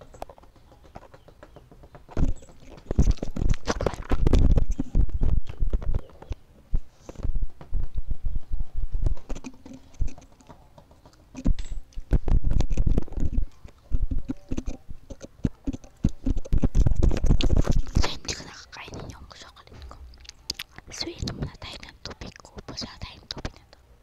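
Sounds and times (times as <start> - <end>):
device handling thumps and scrapes: 1.0 - 14.7.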